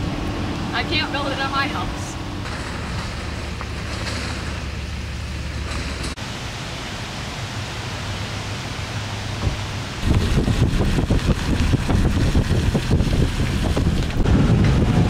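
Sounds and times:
rushing wind: 0.0s - 15.0s
wind buffeting microphone: 9.4s - 15.0s.

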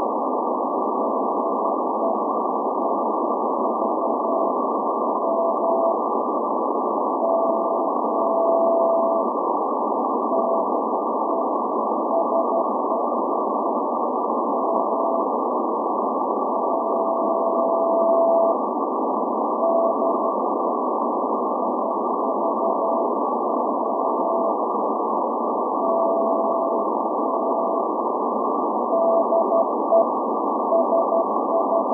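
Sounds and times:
shortwave static hiss: 0.0s - 31.9s
morse code tone: 5.2s - 6.0s, 7.2s - 9.3s, 12.1s - 13.0s, 16.6s - 18.6s, 19.6s - 20.3s, 25.8s - 27.8s, 28.9s - 30.1s, 30.7s - 31.9s.

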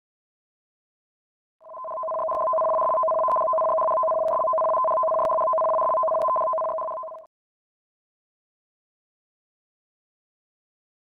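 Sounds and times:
two-tone electronic alert: 1.6s - 7.3s.

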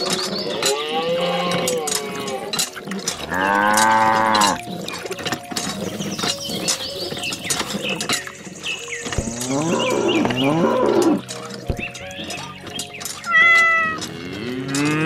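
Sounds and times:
cow mooing: 0.5s - 2.6s, 3.2s - 4.6s, 9.2s - 11.2s, 13.3s - 15.0s.

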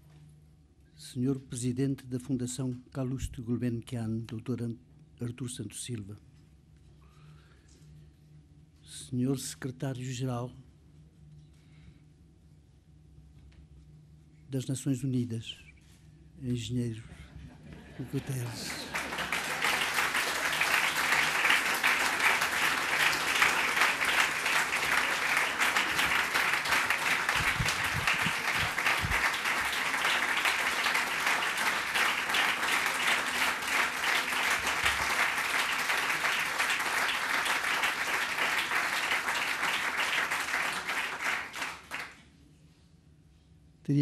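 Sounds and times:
crowd applauding: 17.8s - 42.2s.

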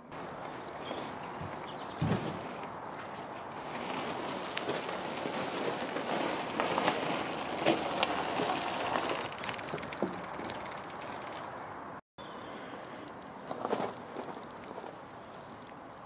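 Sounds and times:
tyres crunching over frost: 3.4s - 11.6s.

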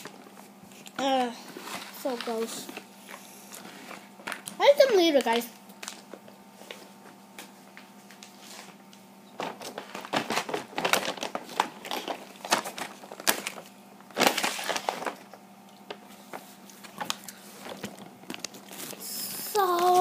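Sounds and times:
plastic bag crinkling: 9.3s - 16.0s, 16.6s - 20.0s.

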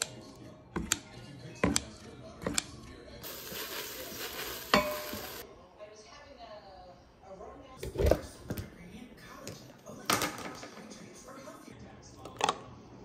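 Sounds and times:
sizzling hiss: 3.2s - 5.4s.

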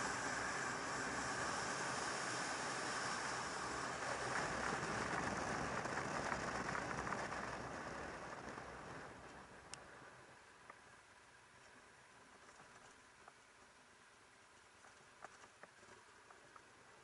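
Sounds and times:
wind rush and road noise: 0.0s - 10.5s.

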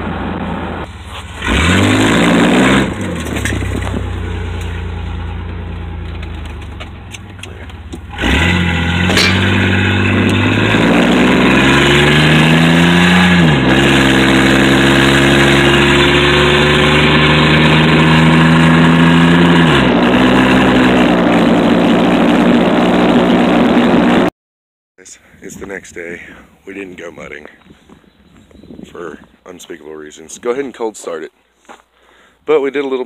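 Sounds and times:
loud car engine accelerating: 0.0s - 24.3s.

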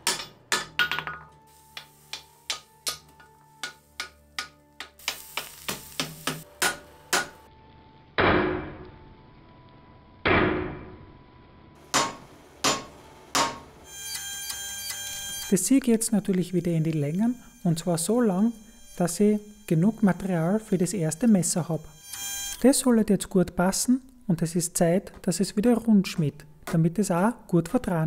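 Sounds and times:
hammer striking metal on anvil: 0.0s - 7.4s, 8.2s - 8.8s, 10.3s - 11.0s, 11.9s - 15.5s.

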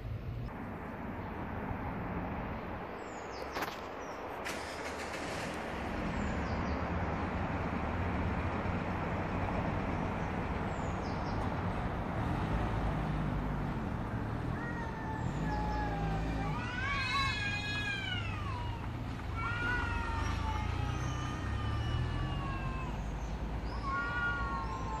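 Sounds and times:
engine rumble: 0.0s - 25.0s
cat yowling: 14.5s - 25.0s.

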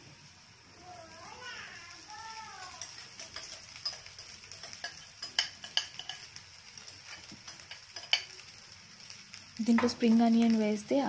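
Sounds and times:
metal spatula tapping a pan: 2.7s - 8.4s.

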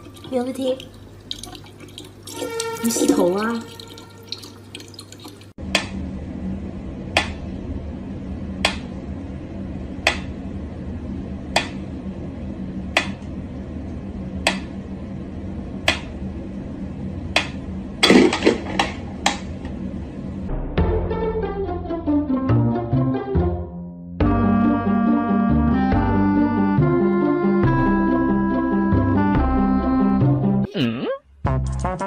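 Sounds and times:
low steady hum: 0.0s - 20.6s.

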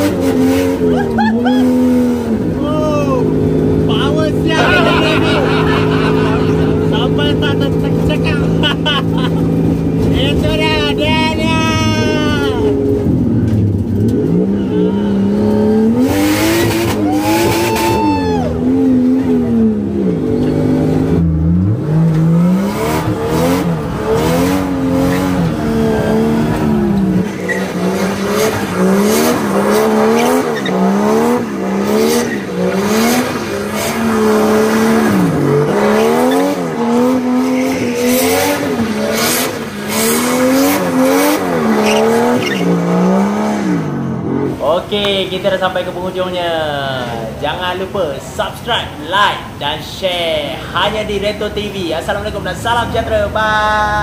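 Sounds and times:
car engine revving: 0.0s - 49.6s
tyres squealing: 41.7s - 42.8s.

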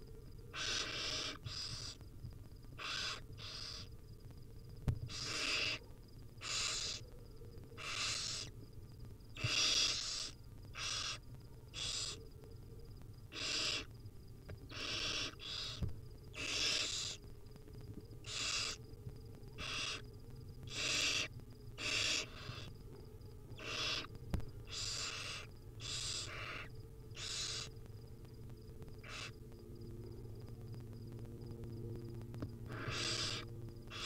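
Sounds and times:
owl chicks hissing begging calls: 0.5s - 2.0s, 2.8s - 3.9s, 5.1s - 5.8s, 6.4s - 7.1s, 7.8s - 8.6s, 9.4s - 12.2s, 13.3s - 13.9s, 14.7s - 17.2s, 18.2s - 18.8s, 19.6s - 20.0s, 20.7s - 22.7s, 23.6s - 27.8s, 28.9s - 29.4s, 32.6s - 34.0s.

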